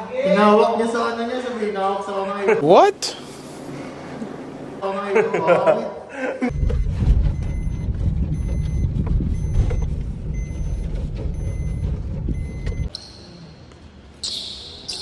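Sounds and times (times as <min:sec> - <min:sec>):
car cabin road rumble: 0:06.5 - 0:12.9
electronic warning chime: 0:06.5 - 0:12.9.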